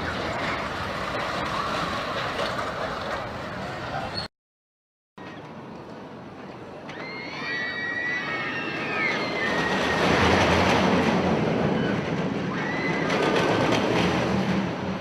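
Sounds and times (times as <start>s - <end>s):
roller coaster chain lift clattering: 0.0s - 4.1s, 8.6s - 15.0s.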